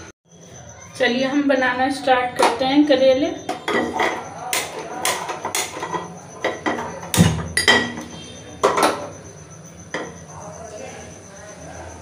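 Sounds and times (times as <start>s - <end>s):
metal pressure cooker clattering: 3.5s - 9.0s.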